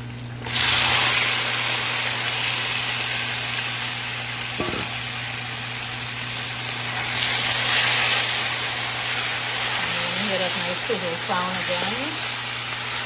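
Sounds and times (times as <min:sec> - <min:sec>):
chicken sizzling in oil: 0:00.0 - 0:13.0
brief knock: 0:04.6 - 0:05.0.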